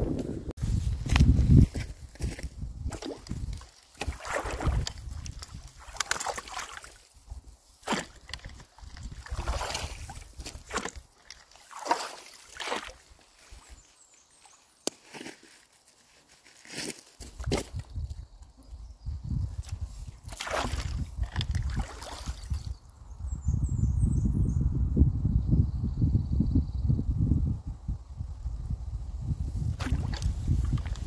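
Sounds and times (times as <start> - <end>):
shallow water sloshing: 2.9 - 7.1, 7.8 - 13.7, 20.3 - 22.6.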